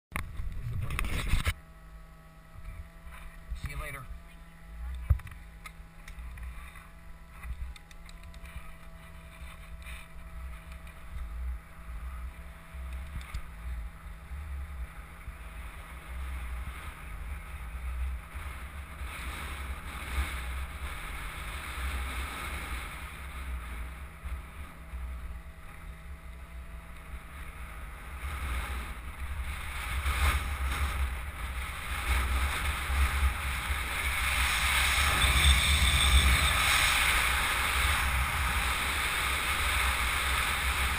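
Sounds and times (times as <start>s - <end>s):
wind buffeting microphone: 28.3s - 40.9s.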